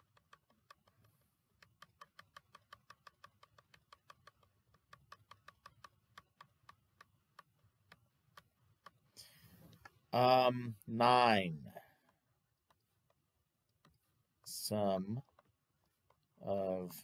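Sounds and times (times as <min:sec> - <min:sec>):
mouse button clicking rapidly: 0:01.6 - 0:09.0.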